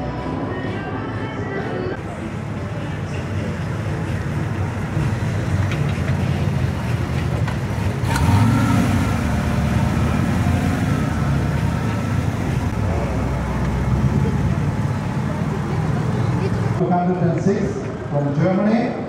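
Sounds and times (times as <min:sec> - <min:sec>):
car engine rumbling: 0:02.0 - 0:16.8.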